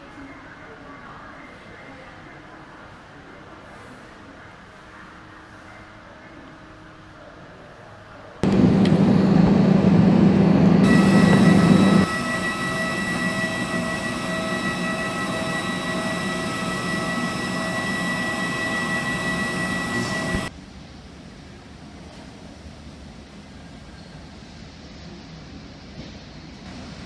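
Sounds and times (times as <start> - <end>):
jet airliner engine whine: 8.4 - 20.5.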